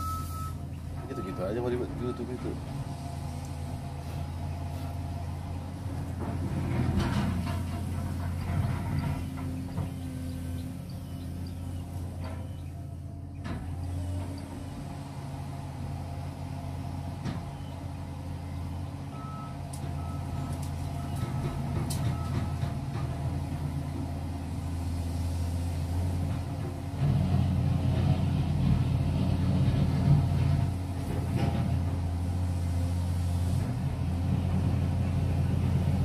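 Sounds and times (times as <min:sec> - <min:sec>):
short high alarm beeps: 0:00.0 - 0:01.5
diesel engine running: 0:00.0 - 0:36.0.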